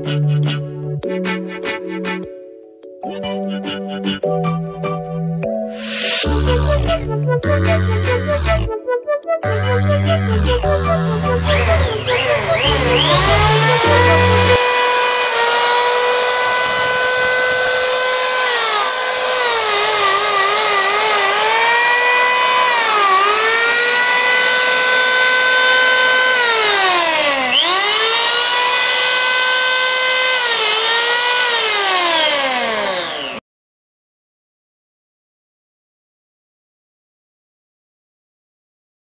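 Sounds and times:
electric hand planer whining: 0:05.8 - 0:06.3, 0:09.6 - 0:33.4.

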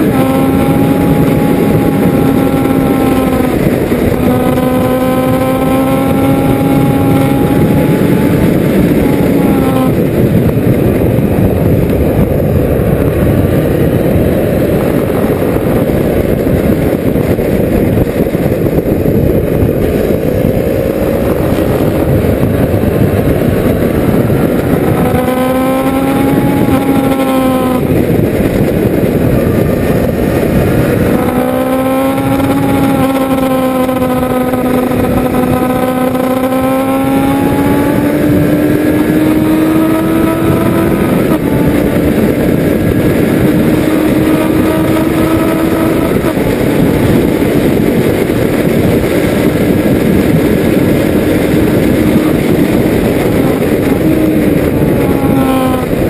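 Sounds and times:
motorcycle engine running hard: 0:00.0 - 0:56.0
wind rushing on microphone: 0:00.0 - 0:56.0.

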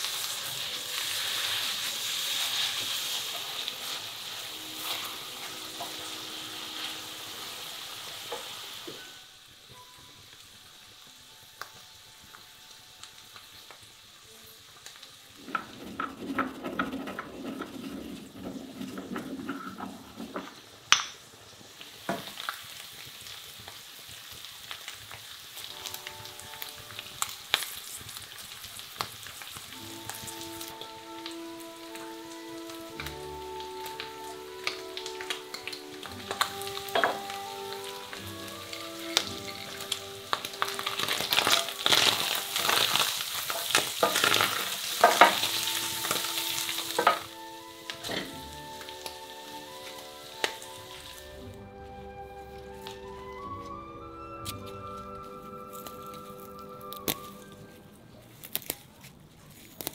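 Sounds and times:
faint background music: 0:00.0 - 0:20.8, 0:23.6 - 0:59.9
meat sizzling in a pot: 0:00.0 - 0:57.6
mortar and pestle grinding: 0:15.4 - 0:20.5
wooden spoon stirring: 0:15.4 - 0:20.8, 0:30.0 - 0:51.5.

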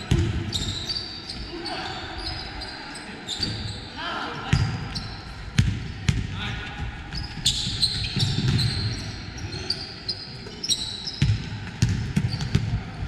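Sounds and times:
sneaker squeaks on floor: 0:00.1 - 0:03.9, 0:04.5 - 0:05.3, 0:07.1 - 0:11.4, 0:12.2 - 0:12.6
basketball bouncing: 0:08.2 - 0:08.9, 0:11.2 - 0:12.8.

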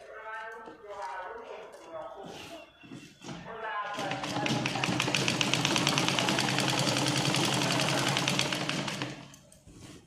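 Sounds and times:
sewing machine stitching: 0:04.0 - 0:09.4.

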